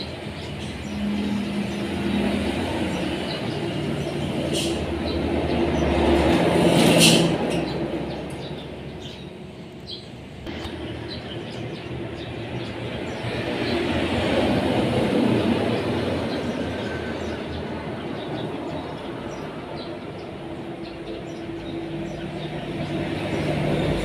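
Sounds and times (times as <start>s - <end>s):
sparrows chirping: 0.0s - 24.0s.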